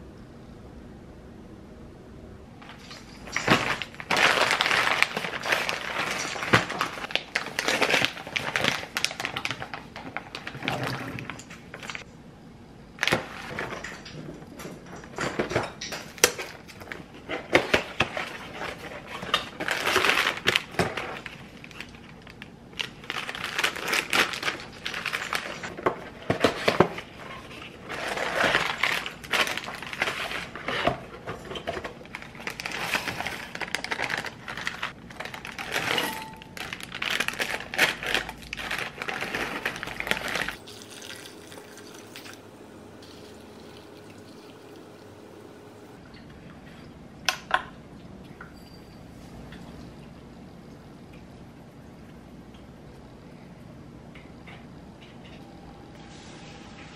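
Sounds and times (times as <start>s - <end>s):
packaging rustling and crinkling: 2.6s - 12.1s, 15.4s - 42.4s.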